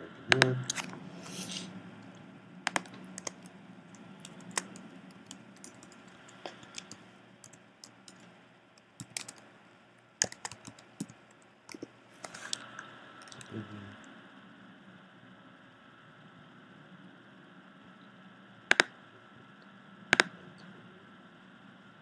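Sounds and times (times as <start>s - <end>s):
keyboard key clicks: 9.0s - 9.4s, 10.2s - 11.8s.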